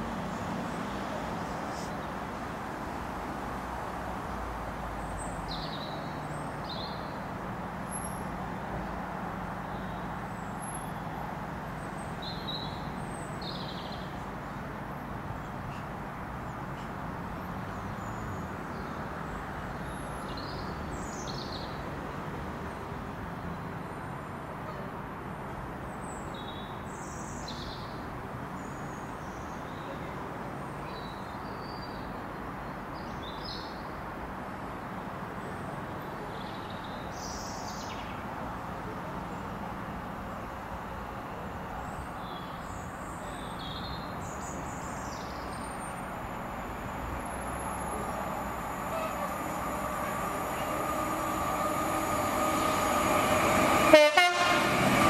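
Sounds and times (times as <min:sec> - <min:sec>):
birds chirping: 0:42.3 - 0:54.1
distant diesel locomotive drone: 0:44.7 - 0:55.0.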